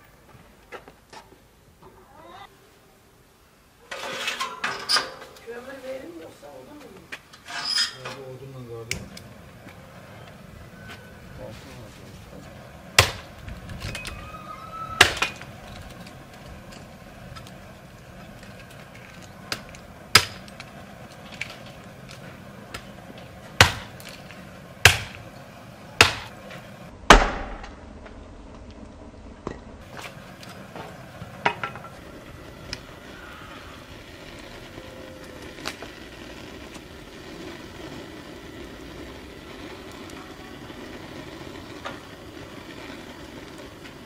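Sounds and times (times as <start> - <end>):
hatchet splitting wood: 13.0 - 13.3, 23.6 - 24.0, 24.8 - 25.2, 26.0 - 26.3.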